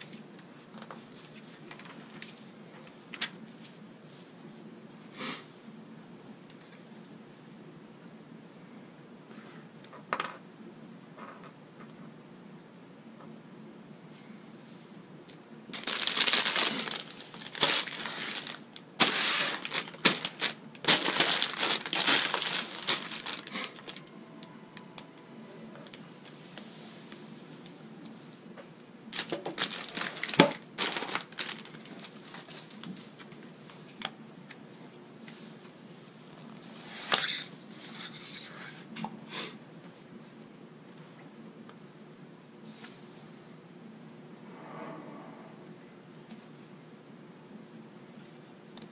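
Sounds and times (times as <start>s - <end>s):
paper pages rustling: 0.8s - 3.8s, 15.7s - 24.1s, 29.2s - 33.9s
plastic bags crinkling: 15.7s - 24.1s, 29.1s - 33.5s.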